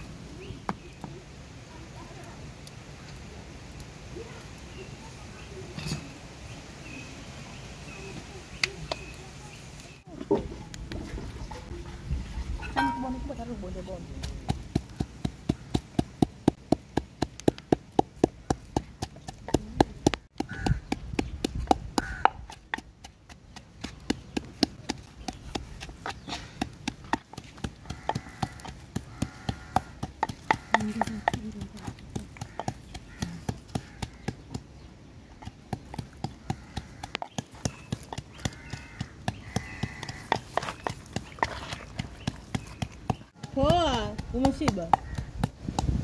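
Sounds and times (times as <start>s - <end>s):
knife chopping on wooden board: 14.2s - 34.6s.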